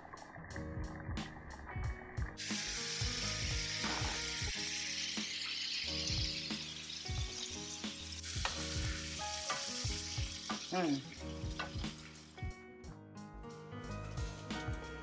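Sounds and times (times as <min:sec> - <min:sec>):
food sizzling in a skillet: 0:02.4 - 0:12.4.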